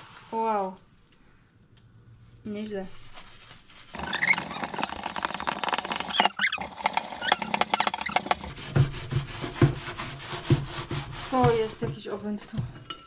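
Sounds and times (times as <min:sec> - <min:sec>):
sponge scrubbing frying pan: 0:03.3 - 0:12.0.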